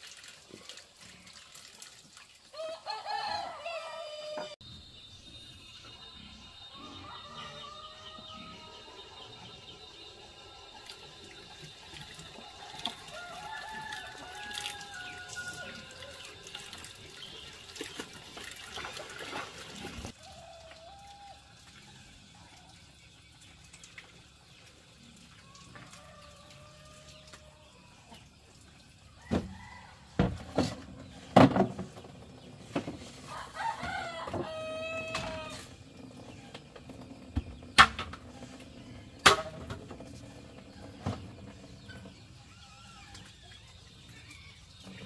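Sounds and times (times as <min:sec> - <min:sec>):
rooster crowing: 0:02.5 - 0:04.6, 0:06.6 - 0:09.3, 0:12.4 - 0:16.3, 0:20.2 - 0:21.5, 0:25.5 - 0:27.7, 0:33.3 - 0:35.7
bamboo poles knocking: 0:39.2 - 0:39.8.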